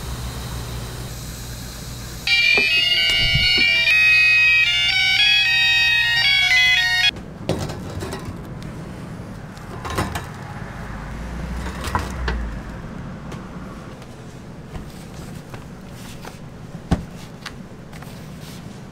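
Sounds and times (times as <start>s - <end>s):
electronic beeper tune: 2.3s - 7.1s.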